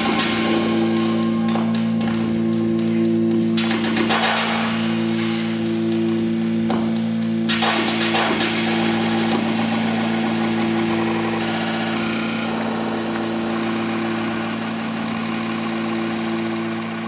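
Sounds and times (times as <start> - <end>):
electronic drone music: 0.0 - 17.0.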